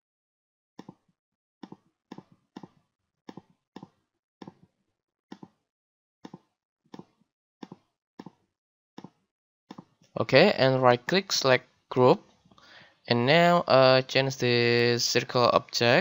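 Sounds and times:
computer mouse clicks: 6.3 - 8.4, 9.0 - 9.9.

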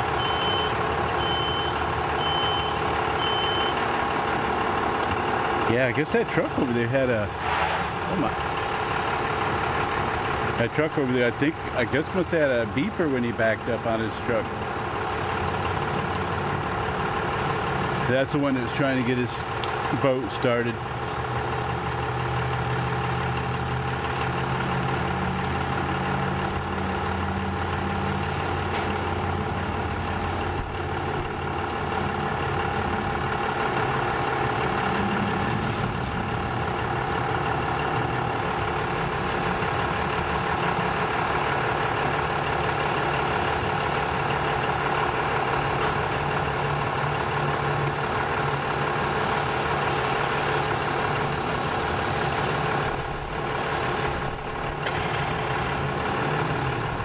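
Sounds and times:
engine idling: 0.0 - 57.0.

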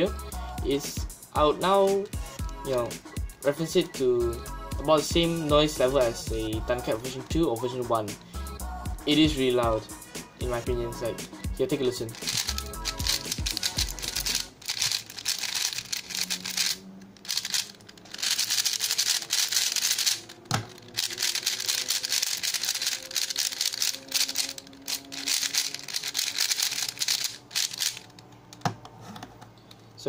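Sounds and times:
puzzle cube clacking rattle: 12.0 - 28.4.

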